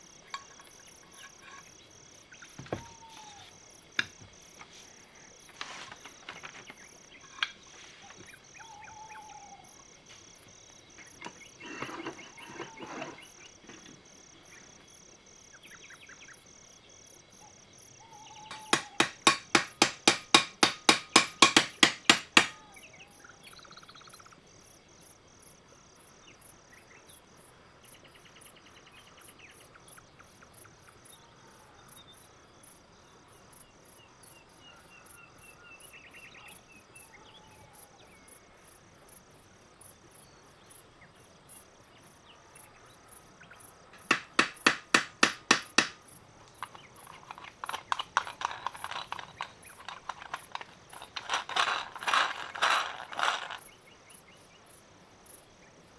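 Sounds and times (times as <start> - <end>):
hammer tapping on metal: 18.5 - 22.6, 44.0 - 46.0
small metal parts clinking: 18.5 - 22.6, 46.5 - 53.6.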